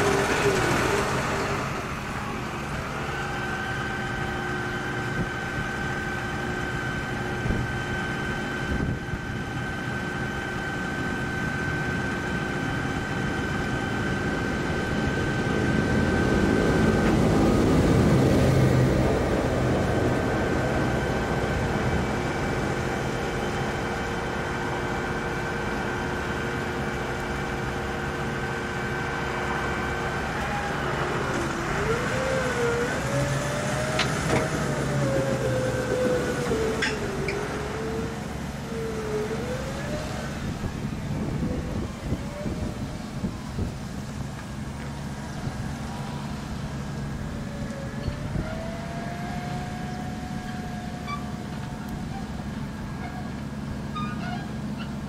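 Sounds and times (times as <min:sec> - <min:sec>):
harvester machine hum: 0:00.0 - 0:55.0
wavering whining tone: 0:26.2 - 0:44.0, 0:45.4 - 0:54.5.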